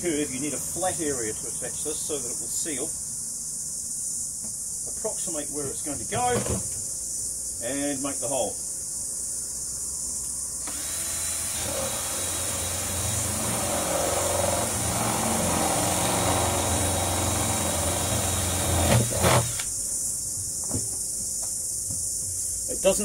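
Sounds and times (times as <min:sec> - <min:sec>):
cordless drill boring plastic: 0:10.6 - 0:19.7.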